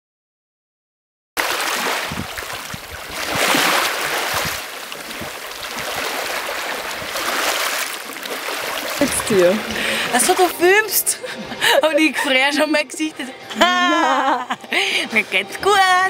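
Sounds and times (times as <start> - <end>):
waves washing over pebbles: 1.4 - 10.6
wind rumble on microphone: 1.8 - 7.4.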